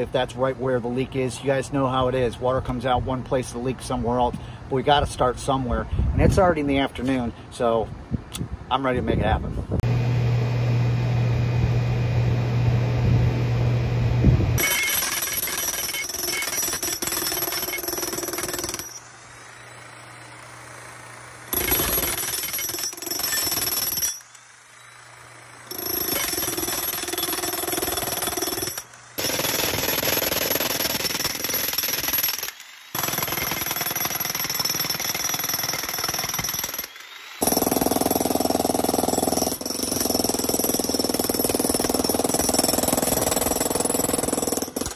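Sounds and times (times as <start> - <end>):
steady low hum: 9.7 - 14.6
jackhammer breaking concrete: 14.6 - 19.0, 21.5 - 24.3, 25.7 - 44.9.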